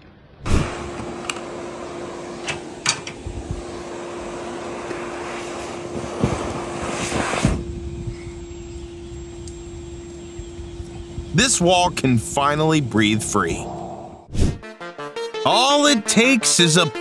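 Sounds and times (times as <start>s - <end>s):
loud rush of air: 0.4s - 8.4s
dryer blower humming: 0.5s - 13.4s.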